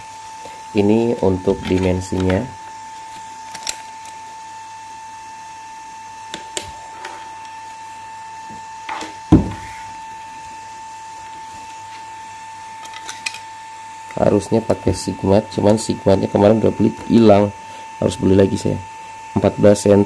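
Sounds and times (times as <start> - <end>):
high electrical whine: 0.0 - 20.0
thump: 9.3 - 9.7.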